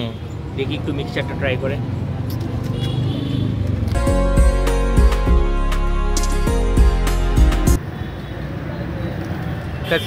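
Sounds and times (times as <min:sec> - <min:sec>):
sustained music notes: 0:04.0 - 0:07.8.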